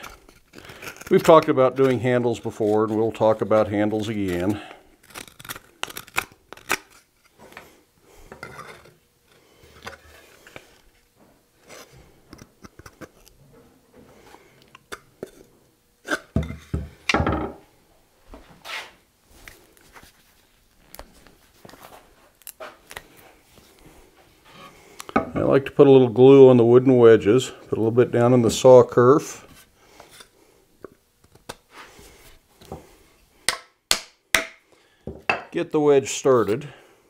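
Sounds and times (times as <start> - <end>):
knife shaving wood: 0.0 - 7.4
tools knocking on wooden bench: 16.4 - 17.6.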